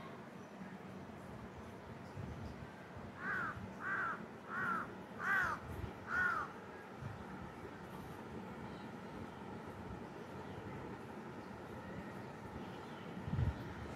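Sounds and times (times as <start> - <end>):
crow cawing: 3.2 - 6.6.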